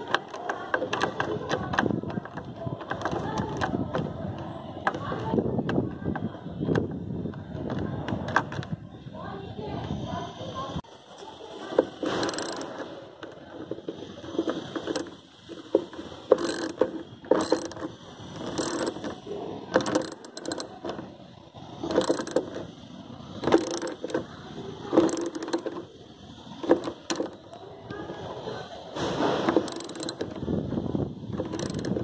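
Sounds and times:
ratchet wrench clicking: 11.9 - 12.9, 14.5 - 20.8, 21.8 - 22.7, 23.4 - 24.3, 24.9 - 25.9, 26.6 - 27.4, 29.6 - 30.4, 31.3 - 32.0.

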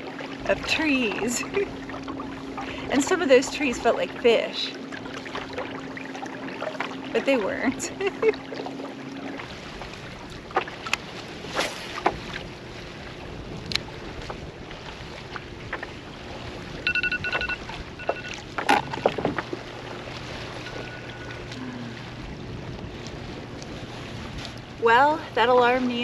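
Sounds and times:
wind on microphone: 9.4 - 26.0
electronic alarm beeping: 16.9 - 19.2
fishing gear clicks and knocks: 17.0 - 19.6.

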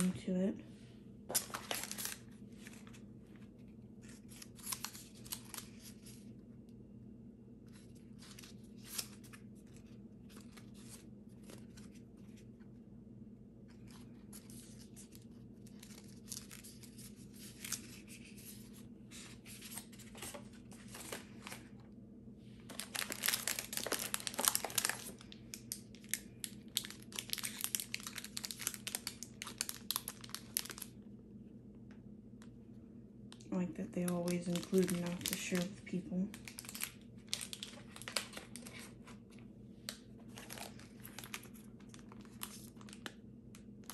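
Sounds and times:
plastic wrappers crinkling: 1.3 - 6.3, 7.7 - 12.4, 13.7 - 21.8, 22.7 - 31.0, 33.4 - 43.9.

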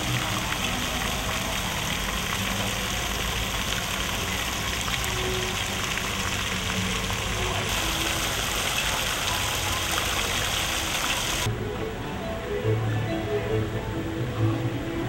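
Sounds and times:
fountain splashing into pool: 0.0 - 11.5.

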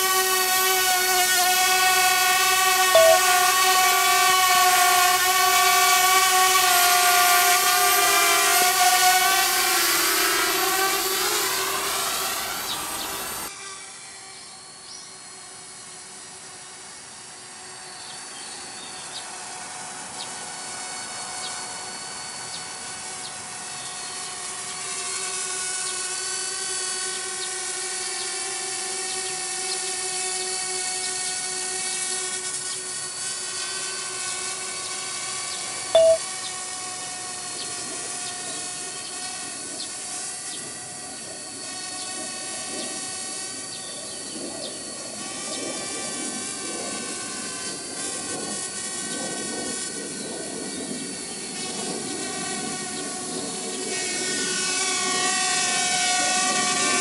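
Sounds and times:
drone propellers whining: 0.1 - 4.6, 5.8 - 13.5, 40.5 - 57.0
loud beep: 3.0 - 3.2, 36.0 - 36.2.

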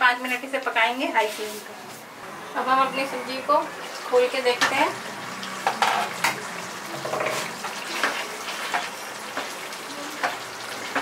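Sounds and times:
ladle scraping a metal pan: 6.9 - 8.9.

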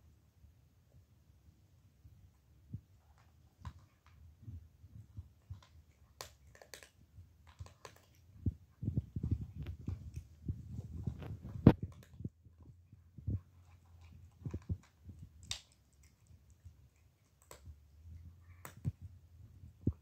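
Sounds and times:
cat chewing food: 5.0 - 20.0.

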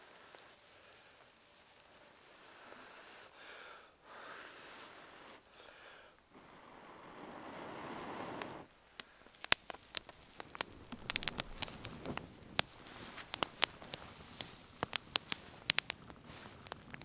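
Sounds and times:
dry grass crackling in fire: 0.0 - 3.3, 6.2 - 17.0
breathy blowing: 2.5 - 9.4.

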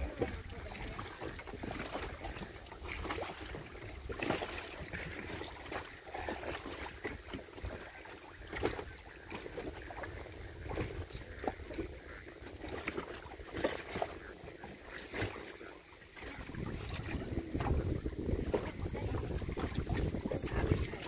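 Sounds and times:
water slapping against boat hull: 0.0 - 21.0
wind buffeting microphone: 9.9 - 12.2, 16.2 - 21.0.

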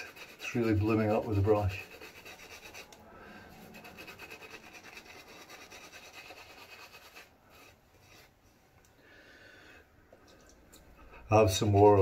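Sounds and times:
shaving brush scrubbing lather: 0.0 - 8.3, 11.2 - 12.0.

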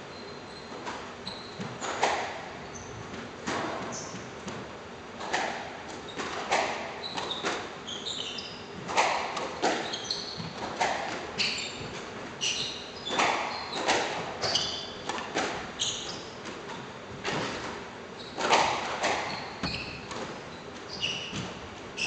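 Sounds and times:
sneakers squeaking on wooden floor: 0.0 - 5.4, 6.0 - 22.0
squash ball hits: 8.8 - 12.0.

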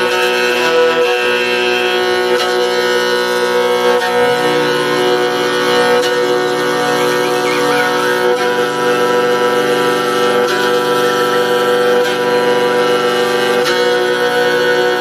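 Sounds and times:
bowed fiddle: 0.0 - 15.0
throat singing drone: 0.6 - 15.0
high thin overtone: 3.7 - 10.3.

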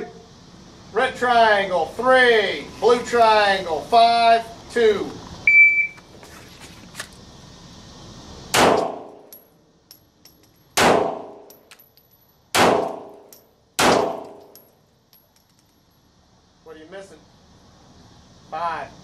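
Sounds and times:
shot timer beep: 5.5 - 6.0
pistol shots: 8.5 - 9.2, 10.8 - 11.5, 12.5 - 14.5.

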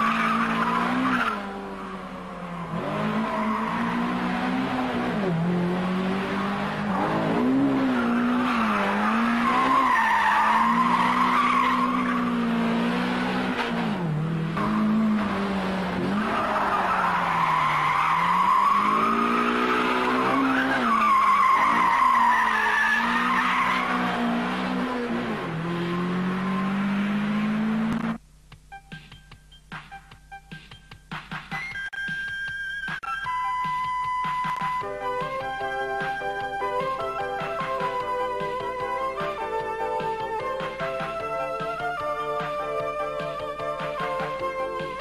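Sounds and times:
car engine revving: 0.0 - 28.2
tyres squealing: 7.7 - 12.4, 16.1 - 24.4.

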